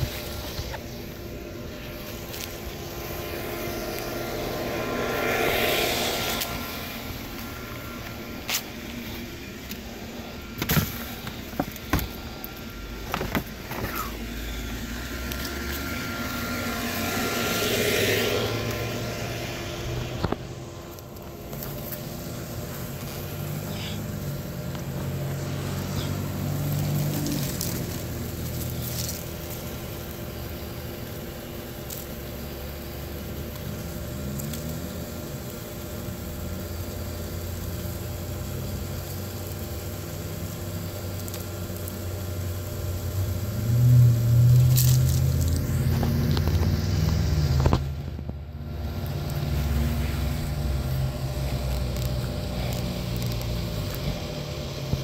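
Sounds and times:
fire crackling: 0.0 - 55.0
low rumble: 0.9 - 8.4, 13.9 - 28.7.

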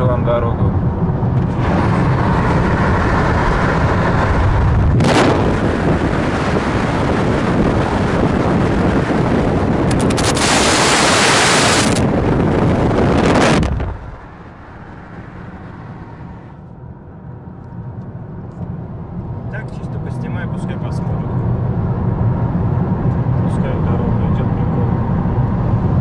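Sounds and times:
wind buffeting microphone: 0.6 - 16.5.

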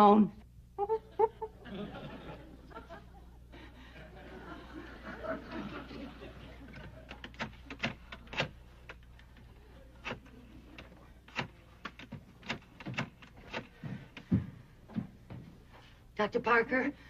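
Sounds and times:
footsteps on hard stage floor: 13.7 - 16.0.

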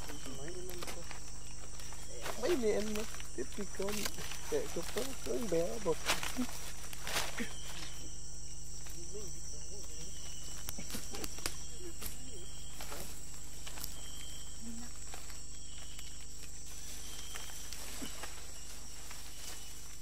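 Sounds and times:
low voices: 0.0 - 13.2
insects buzzing: 0.0 - 20.0
low recording hum: 0.0 - 20.0
rustling through leaf litter: 0.0 - 20.0.

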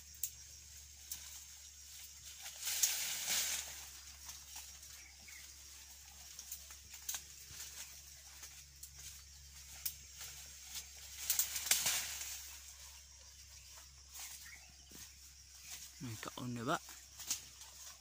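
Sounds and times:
rustling in dry leaves: 0.0 - 18.0
twigs snapping: 6.4 - 7.9, 10.8 - 12.4, 17.1 - 17.6.

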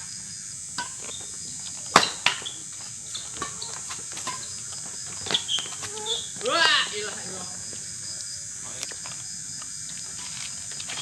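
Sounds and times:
rackets hitting shuttlecock: 1.9 - 4.6.

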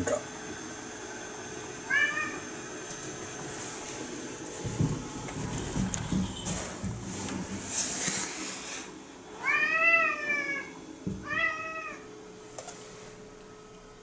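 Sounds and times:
cat meowing: 1.9 - 2.4, 9.4 - 12.1.

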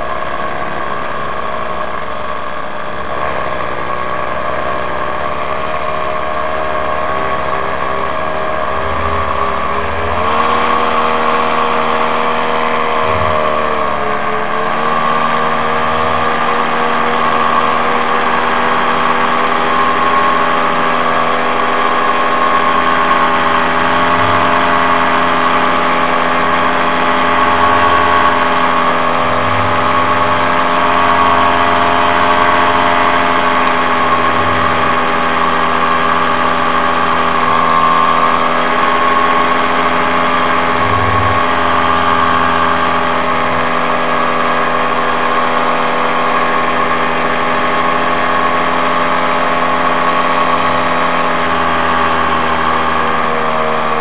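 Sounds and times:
paramotor engine droning: 0.0 - 54.0.

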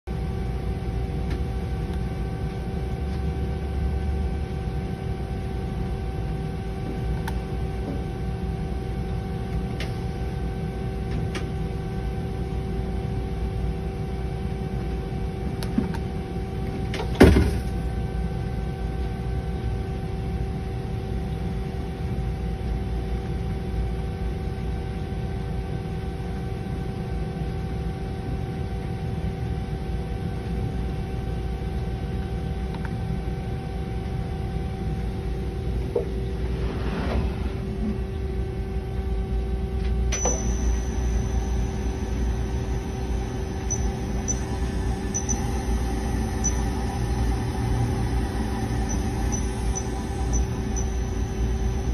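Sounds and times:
lathe humming: 40.2 - 51.9.

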